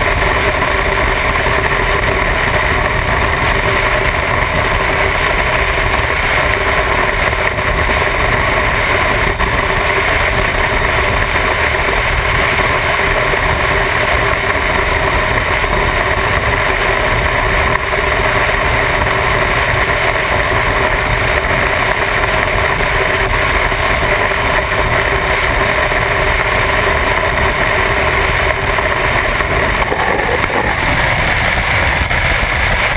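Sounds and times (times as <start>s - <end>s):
motorcycle engine at speed: 0.0s - 32.9s
wind noise on microphone: 0.0s - 32.9s.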